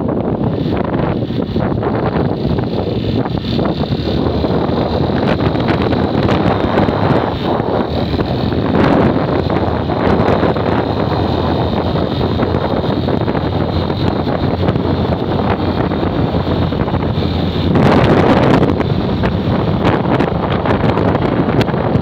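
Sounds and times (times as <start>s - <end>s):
motorcycle engine running: 0.0s - 22.0s
wind noise on microphone: 0.0s - 22.0s.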